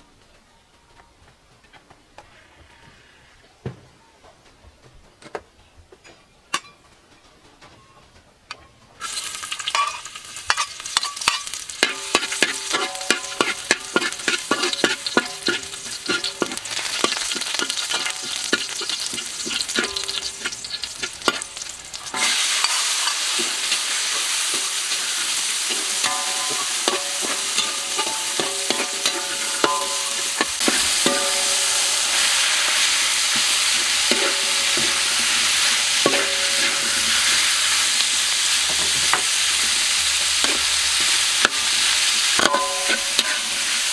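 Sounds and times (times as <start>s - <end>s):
food sizzling in hot oil: 9.0s - 43.9s
metal spatula scraping wok: 9.0s - 43.9s.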